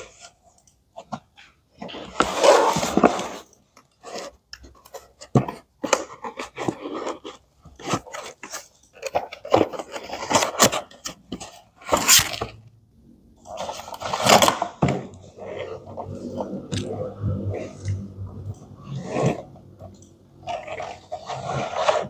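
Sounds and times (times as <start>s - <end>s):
plastic toy sliding out of box: 2.0s - 4.3s, 18.8s - 19.6s, 20.4s - 22.0s.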